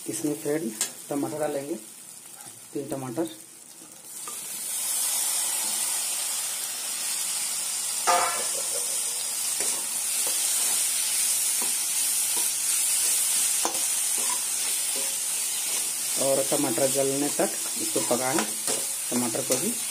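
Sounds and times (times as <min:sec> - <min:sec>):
food sizzling in hot oil: 0:00.0 - 0:19.9
spatula scraping pan: 0:11.6 - 0:19.9.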